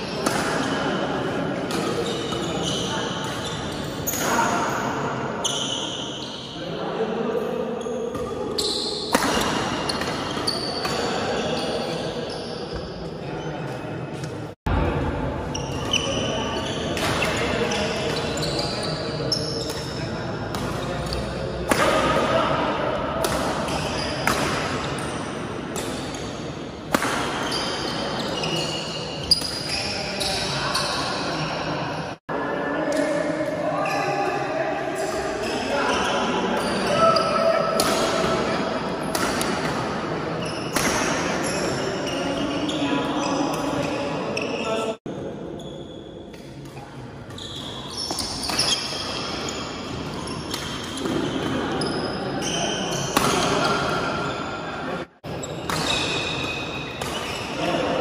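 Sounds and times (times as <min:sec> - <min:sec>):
shoes squeaking on court floor: 0:01.6 - 0:06.6, 0:07.8 - 0:14.4, 0:15.5 - 0:21.3, 0:23.4 - 0:32.1, 0:40.4 - 0:45.0, 0:45.6 - 0:54.6, 0:55.3 - 0:57.8
racket hitting shuttlecock: 0:09.1 - 0:11.1, 0:20.5 - 0:22.3, 0:23.2 - 0:24.8, 0:26.9 - 0:27.4, 0:37.7 - 0:40.0, 0:40.7 - 0:41.8, 0:55.6 - 0:57.3.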